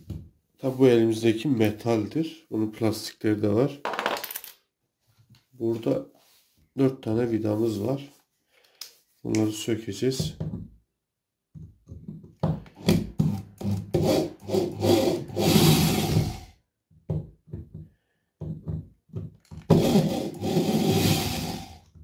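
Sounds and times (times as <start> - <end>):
cordless drill motor bursts: 14.0 - 16.4.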